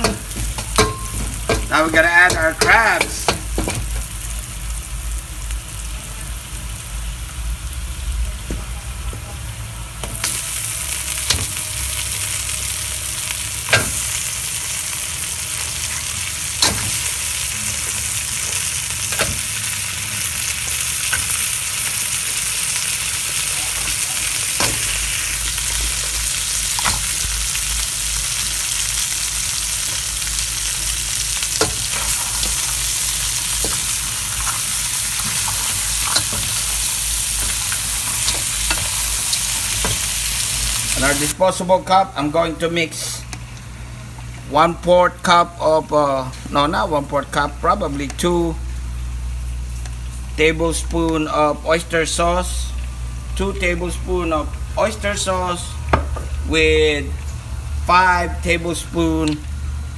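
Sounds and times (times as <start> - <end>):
oil sizzling in wok: 0.0 - 41.5, 48.6 - 50.4.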